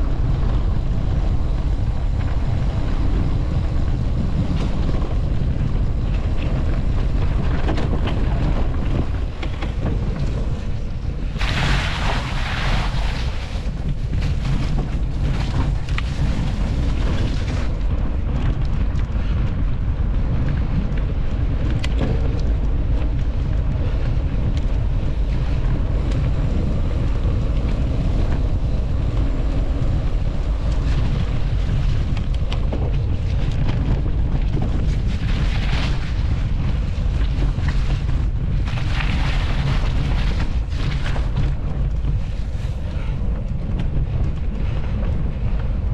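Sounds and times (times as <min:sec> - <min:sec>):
wind buffeting microphone: 0:00.0 - 0:45.9.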